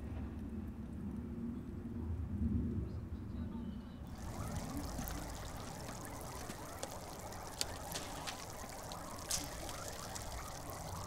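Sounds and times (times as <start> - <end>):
water drips and splashes: 4.1 - 11.0
water trickling into pond: 4.1 - 11.0.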